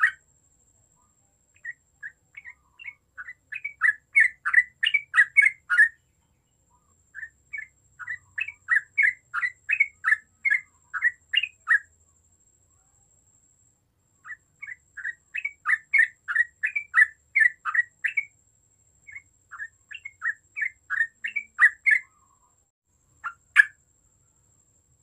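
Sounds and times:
bird singing chirping notes: 0.0s - 0.2s, 1.6s - 11.9s, 14.2s - 18.3s, 19.0s - 22.5s.

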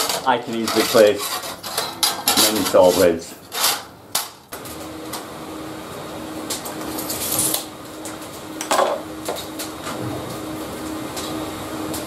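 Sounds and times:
steady hum: 0.0s - 12.0s
brushing scrape: 0.5s - 3.8s.

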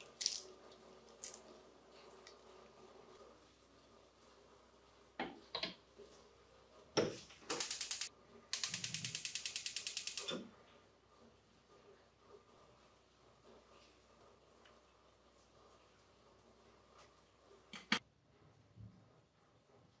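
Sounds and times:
spark igniter clicking rapidly: 7.5s - 10.3s.

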